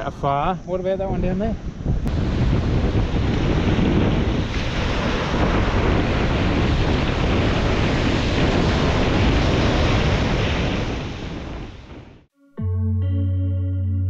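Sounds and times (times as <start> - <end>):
wind buffeting microphone: 0.0 - 12.3
surf washing onto beach: 2.1 - 12.1.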